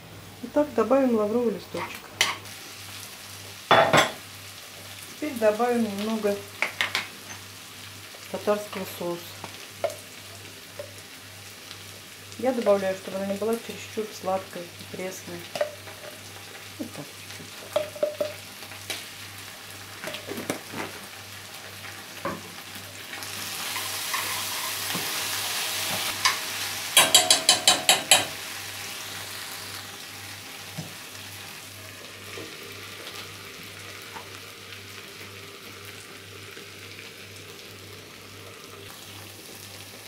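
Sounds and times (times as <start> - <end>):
food sizzling in a frying pan: 0.0 - 40.0
spoon tapping against pan: 9.8 - 10.0, 17.7 - 18.4, 27.0 - 28.4.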